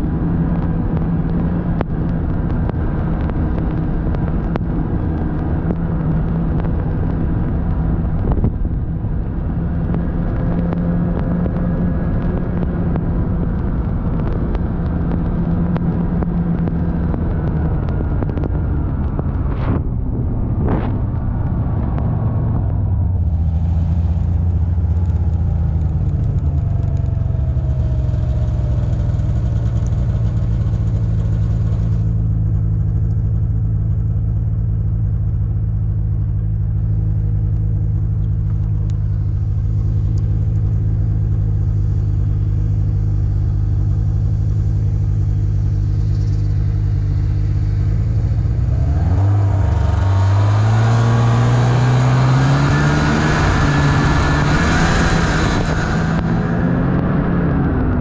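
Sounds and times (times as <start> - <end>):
snowmobile engine revving: 48.4 - 57.9.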